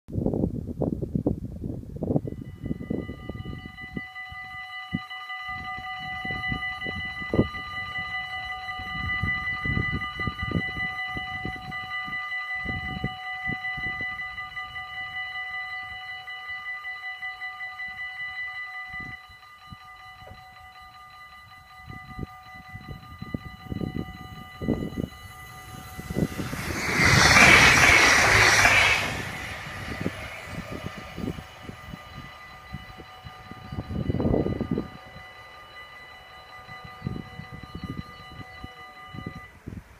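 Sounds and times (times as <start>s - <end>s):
train passing: 23.3s - 39.1s
level-crossing bells ringing: 29.5s - 39.4s.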